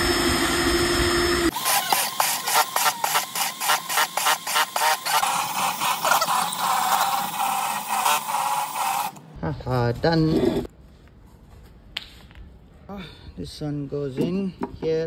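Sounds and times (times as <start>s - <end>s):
drill with hole saw cutting wood: 0.0s - 9.2s.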